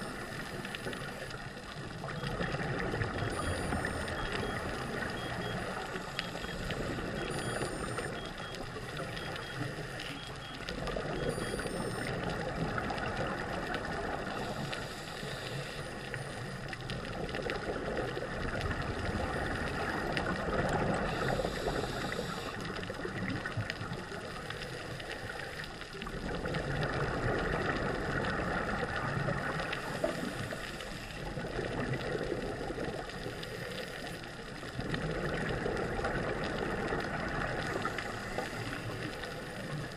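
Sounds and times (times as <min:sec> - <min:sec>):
regulator hissing inhale: 0:14.4 - 0:16.4, 0:21.1 - 0:22.7.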